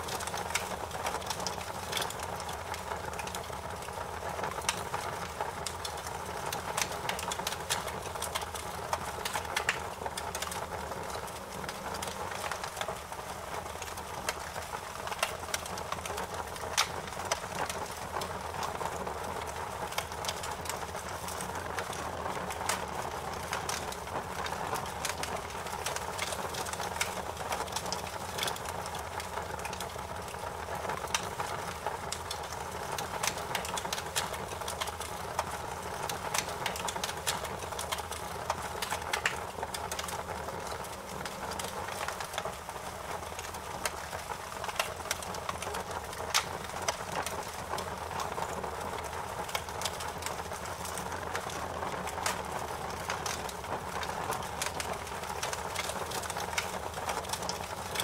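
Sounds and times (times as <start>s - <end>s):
wood fire crackling and popping: 0.0s - 58.0s.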